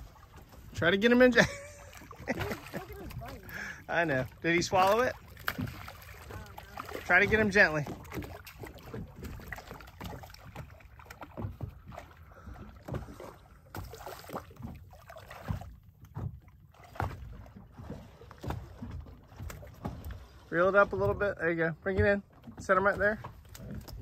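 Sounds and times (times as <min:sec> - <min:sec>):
water splashing against boat: 0:00.0 - 0:24.0
fish thrashing at surface: 0:02.0 - 0:15.8.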